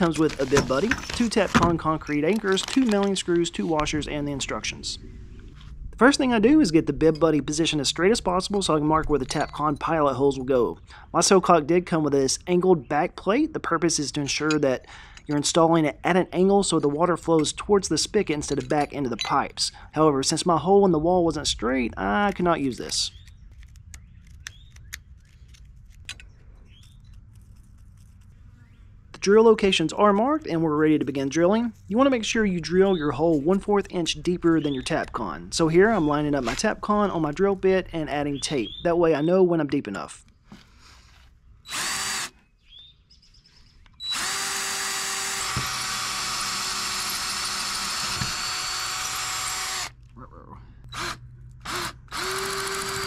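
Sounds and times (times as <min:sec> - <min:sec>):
low steady rumble: 0:03.1 - 0:10.9
drill boring into brick: 0:41.6 - 0:42.4, 0:44.0 - 0:50.0, 0:50.9 - 0:53.0.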